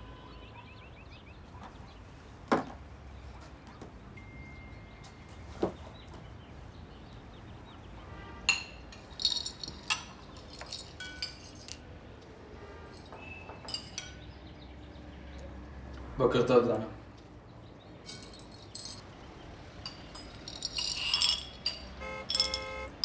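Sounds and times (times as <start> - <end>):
glass and crockery clinking: 8.5 - 11.8, 12.9 - 14.4, 18.0 - 23.0.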